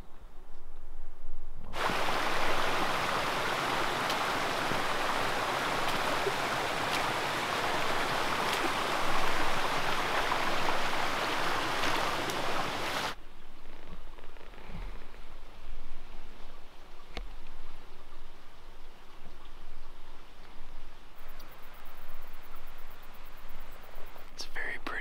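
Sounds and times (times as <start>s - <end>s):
creek babbling over rocks: 1.8s - 13.2s.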